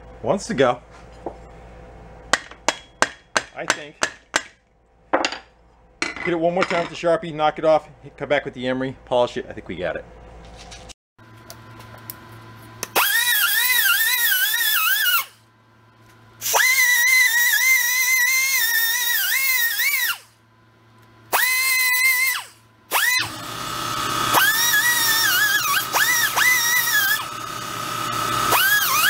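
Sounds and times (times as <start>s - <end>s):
air angle grinder whining: 12.8s - 15.4s, 16.4s - 20.4s, 21.3s - 29.0s.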